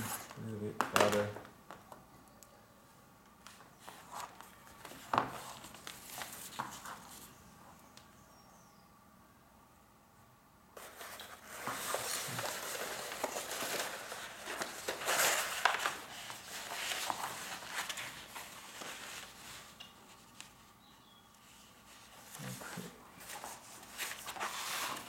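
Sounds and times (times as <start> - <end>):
paper rustling and crackling: 3.5 - 7.4, 10.8 - 20.6, 21.4 - 25.0.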